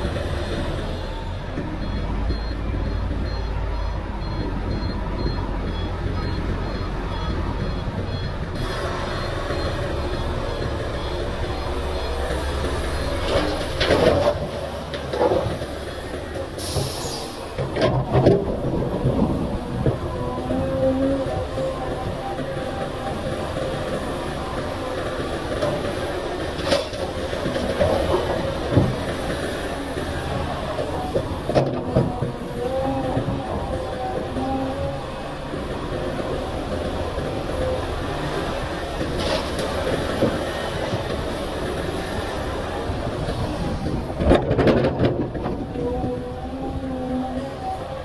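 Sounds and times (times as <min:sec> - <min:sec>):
truck reversing alarm beeping: 0:00.0 - 0:17.6
diesel engines running: 0:00.0 - 0:48.0.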